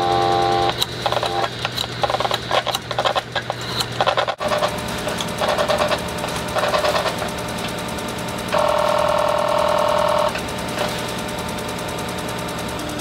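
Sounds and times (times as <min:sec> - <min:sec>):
loud buzzing: 0:00.0 - 0:01.5, 0:04.4 - 0:10.6
teletype clattering: 0:00.0 - 0:11.0
teletype printing bursts: 0:00.0 - 0:13.0.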